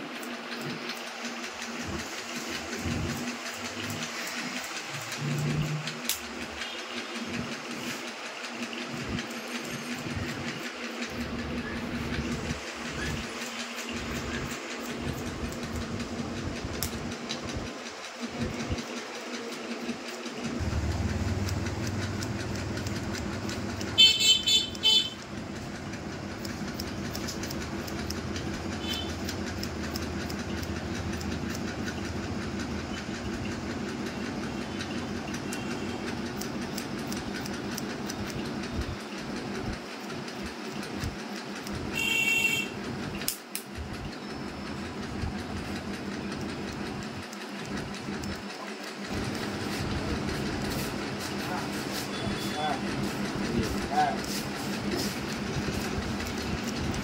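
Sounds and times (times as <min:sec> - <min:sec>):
steady mechanical hum: 0:00.0 - 0:57.0
scissors snipping hair: 0:02.0 - 0:06.5, 0:13.0 - 0:17.4, 0:19.2 - 0:32.7, 0:35.3 - 0:38.4, 0:43.2 - 0:43.8.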